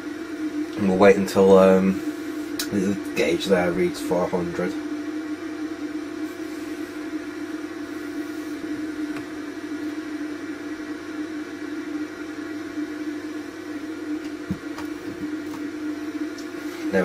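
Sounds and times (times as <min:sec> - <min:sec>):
machine hum: 0:00.0 - 0:17.0.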